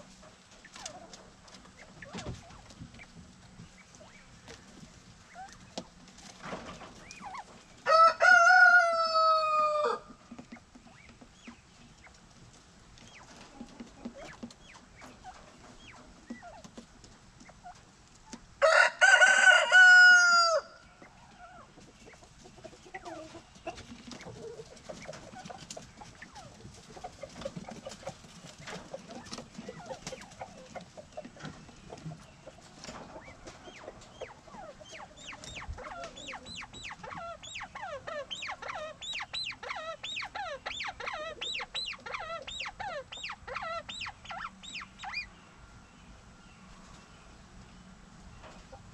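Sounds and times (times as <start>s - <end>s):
birds ticking and rustling: 0.0s - 48.9s
rooster crowing: 7.8s - 10.1s, 18.6s - 20.8s.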